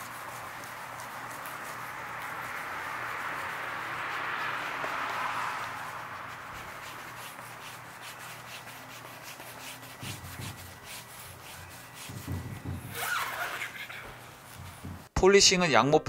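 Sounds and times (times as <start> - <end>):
towel scrubbing car paint: 0.0 - 15.2
dull bumps: 10.0 - 15.2.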